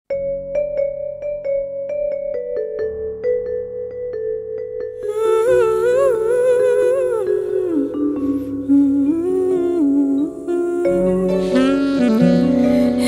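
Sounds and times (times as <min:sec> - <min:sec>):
electronic keyboard playing: 0:00.1 - 0:13.0
woman humming: 0:05.0 - 0:13.0.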